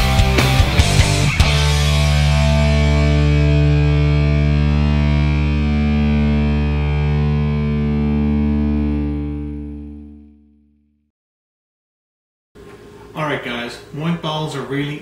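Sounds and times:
distorted electric guitar chord: 0.0s - 10.8s.

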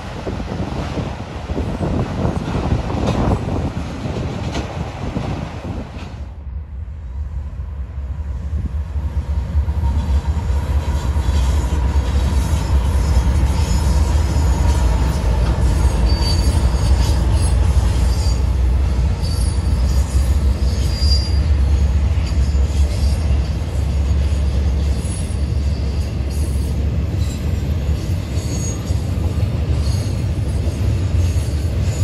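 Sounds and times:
diesel locomotive engine rumble: 0.0s - 32.0s
train cars rolling on rails: 0.0s - 32.0s
high-pitched wheel squeals: 12.3s - 29.2s.

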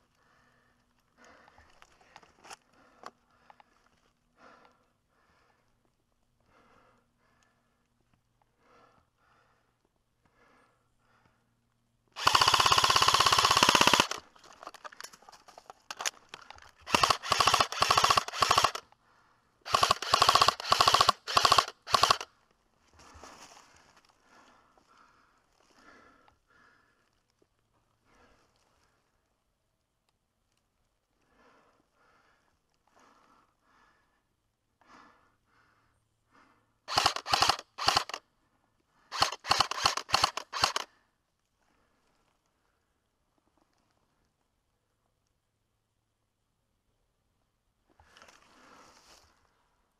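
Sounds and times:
airsoft rifle bursts: 12.2s - 15.0s, 16.8s - 18.9s, 19.7s - 22.3s, 36.9s - 38.2s, 39.1s - 40.9s.

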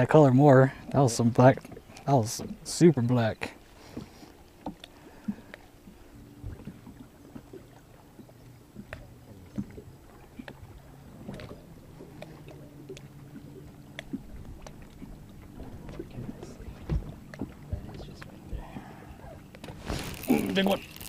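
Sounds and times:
low motor hum: 0.0s - 21.0s
water lapping: 0.0s - 21.0s
knocks against boat hull: 16.8s - 18.7s.

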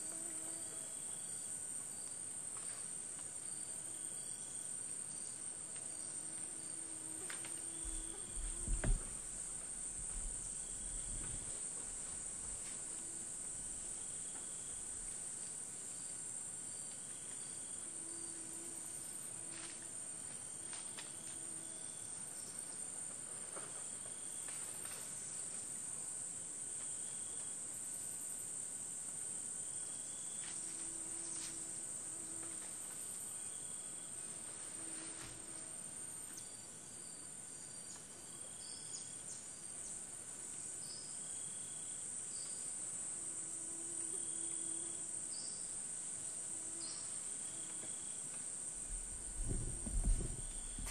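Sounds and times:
faint short insect calls: 3.5s - 22.8s, 29.6s - 50.9s
high-pitched insect trill: 29.4s - 50.9s.

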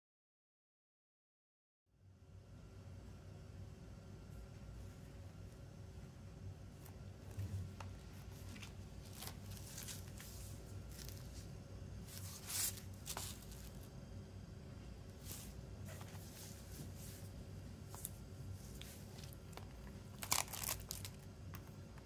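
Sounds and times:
cellophane rustling: 8.2s - 13.9s, 17.9s - 21.6s.

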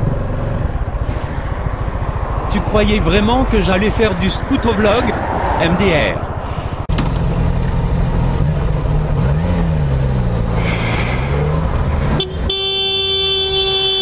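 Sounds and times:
motorcycle engine running: 6.3s - 10.6s
vehicle horn held: 12.1s - 14.0s.

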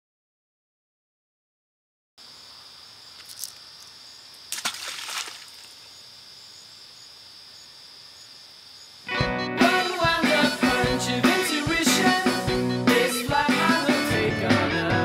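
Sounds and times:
insects chirring: 2.2s - 14.1s
person splashing into water: 4.5s - 5.8s
music: 9.1s - 15.0s.

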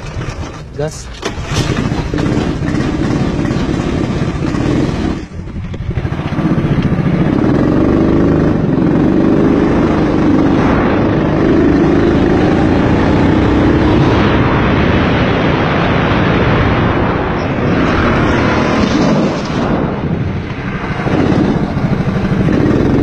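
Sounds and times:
go-kart engine revving: 0.0s - 14.4s, 20.8s - 23.0s.

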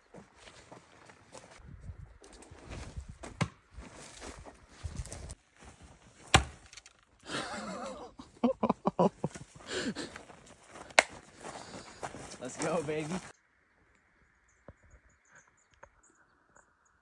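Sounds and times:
scuffing footsteps: 0.0s - 1.6s, 2.3s - 6.6s, 9.2s - 13.3s
spear thunking into tree trunk: 6.2s - 6.9s.

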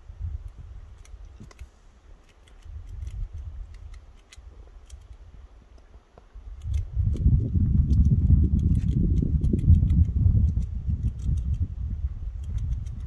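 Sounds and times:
low microphone rumble: 6.4s - 13.0s
squirrel crunching a chip: 6.5s - 11.7s.

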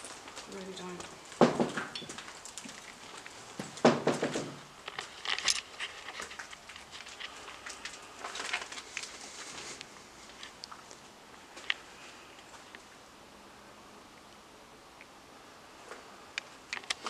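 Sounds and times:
footsteps crunching over debris: 0.0s - 12.8s
clicks and crackles: 0.0s - 12.9s, 15.8s - 17.0s.

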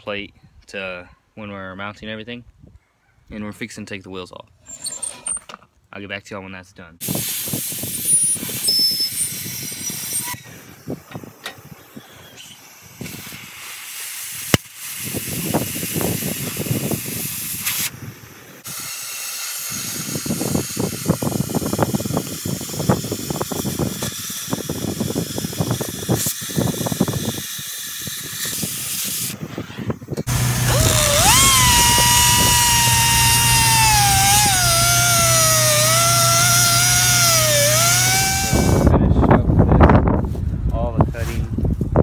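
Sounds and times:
cutting torch hissing: 30.3s - 38.9s
electric power tool whining: 30.3s - 38.9s.

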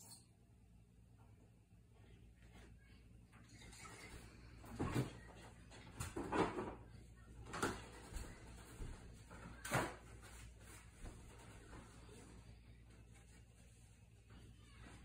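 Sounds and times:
faint low hum: 0.0s - 15.0s
objects knocking and clattering: 5.8s - 8.2s.

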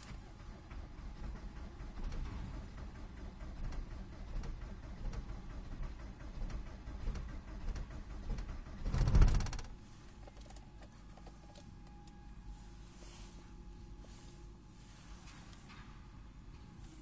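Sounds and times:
engine starter cranking: 0.0s - 12.1s
faint steady whine: 8.9s - 17.0s.

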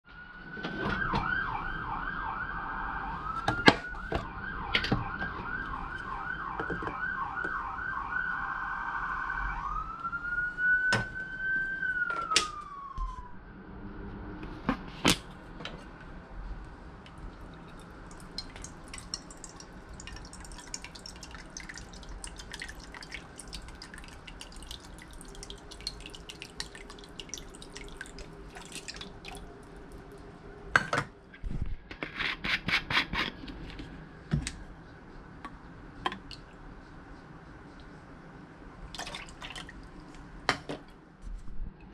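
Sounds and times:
siren warbling: 0.1s - 14.4s.

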